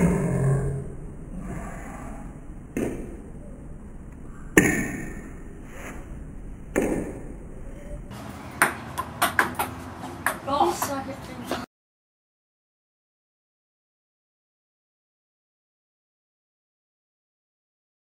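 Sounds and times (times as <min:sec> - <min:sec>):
ping-pong ball knocks: 0:08.6 - 0:10.9.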